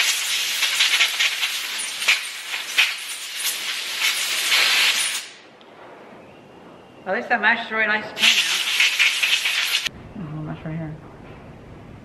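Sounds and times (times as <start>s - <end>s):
hissing spray blast: 0.0s - 5.4s, 8.2s - 9.9s.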